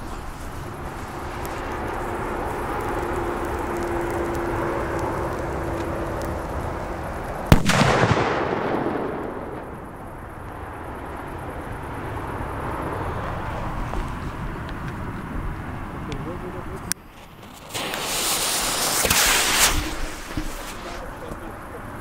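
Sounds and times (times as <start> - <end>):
firecracker bang: 7.5 - 10.3, 17.2 - 21.0.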